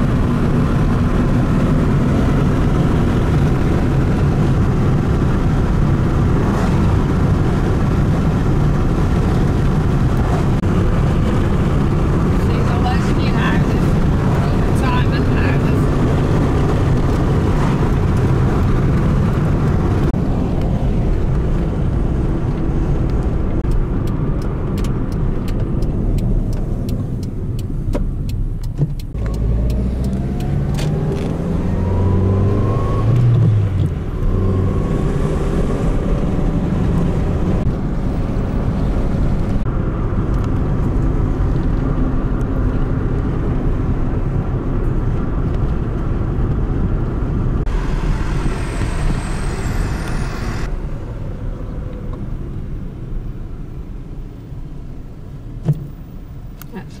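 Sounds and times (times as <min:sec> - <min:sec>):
car engine accelerating: 0:00.0 - 0:57.0
road noise inside car: 0:00.0 - 0:57.0.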